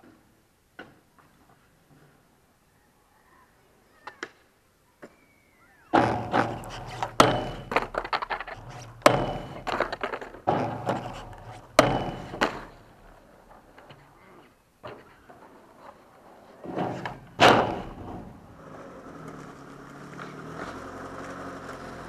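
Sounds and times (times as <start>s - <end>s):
skateboard wheels rolling on concrete: 0.0s - 22.0s
skateboard clacking on metal handrail: 6.0s - 14.0s, 16.7s - 19.5s.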